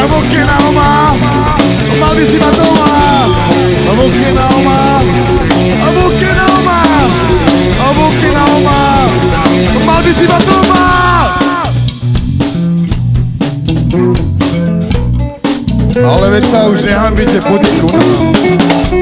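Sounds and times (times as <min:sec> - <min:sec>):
sliding melody line: 0:00.0 - 0:12.0, 0:15.9 - 0:19.0
live punk rock band: 0:00.0 - 0:19.0.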